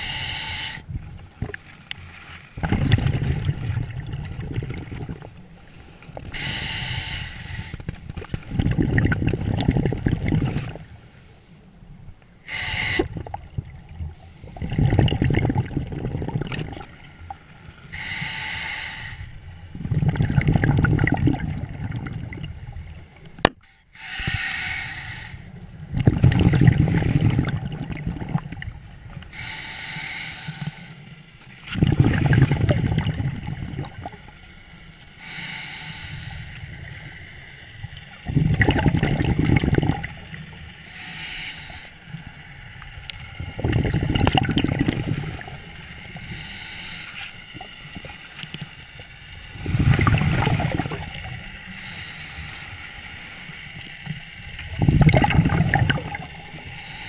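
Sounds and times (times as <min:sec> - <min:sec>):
regulator inhalation hiss: 0:00.0 - 0:00.8, 0:06.3 - 0:07.9, 0:12.5 - 0:13.2, 0:17.7 - 0:19.6, 0:23.6 - 0:25.6, 0:29.3 - 0:31.2, 0:34.6 - 0:37.7, 0:40.7 - 0:42.7, 0:45.7 - 0:47.6, 0:50.6 - 0:53.6, 0:56.5 - 0:57.0
exhaled bubbles rushing: 0:02.6 - 0:05.4, 0:08.1 - 0:10.8, 0:13.0 - 0:16.9, 0:19.7 - 0:22.7, 0:25.9 - 0:28.8, 0:31.6 - 0:34.2, 0:38.2 - 0:40.5, 0:43.4 - 0:45.6, 0:49.5 - 0:51.4, 0:54.6 - 0:56.6.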